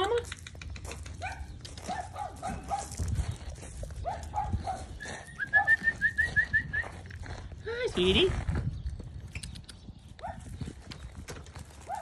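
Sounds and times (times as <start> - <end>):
puppies yipping: 4.0 - 6.4.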